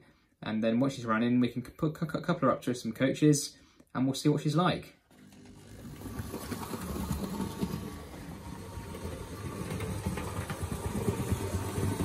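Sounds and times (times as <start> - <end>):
model locomotive motor rumble: 5.2 - 12.0.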